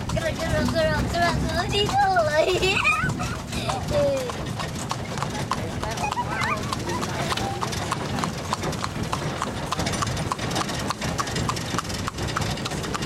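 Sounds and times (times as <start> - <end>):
carriage rolling rumble: 0.0 - 13.0
hooves clip-clopping on wet road: 0.0 - 13.0.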